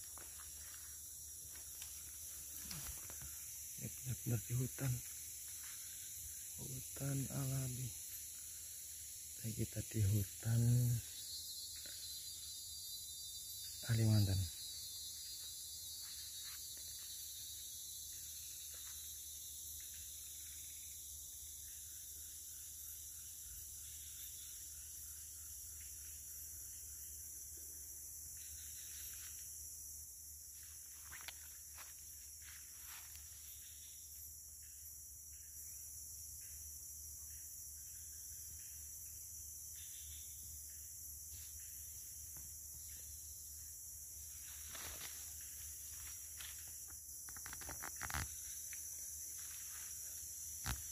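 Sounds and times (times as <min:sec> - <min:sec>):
leaves rustling: 0:00.0 - 0:03.5, 0:44.3 - 0:46.8
insect chorus drone: 0:00.0 - 0:50.9.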